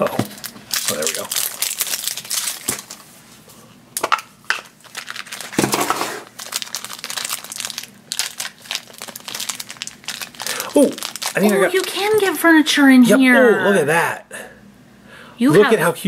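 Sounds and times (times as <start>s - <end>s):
plastic wrapping crinkling: 0.2s - 3.2s, 4.5s - 12.6s.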